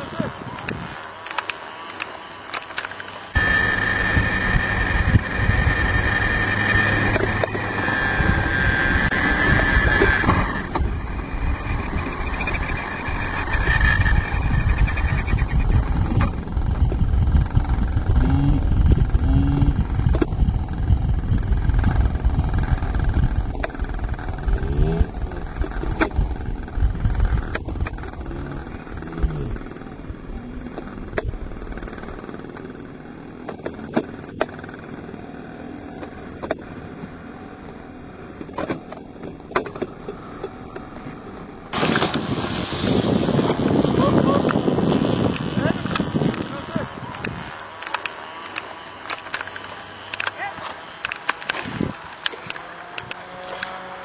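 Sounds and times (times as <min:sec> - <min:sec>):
model helicopter rotor whine: 0:00.0 - 0:54.0
scattered clicks: 0:00.2 - 0:18.2, 0:45.3 - 0:53.8
wind rumbling on microphone: 0:03.3 - 0:35.0, 0:38.3 - 0:53.9.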